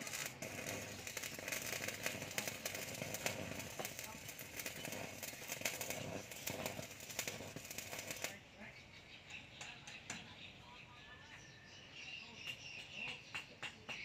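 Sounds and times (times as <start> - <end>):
welding arc crackling: 0.0 - 8.5.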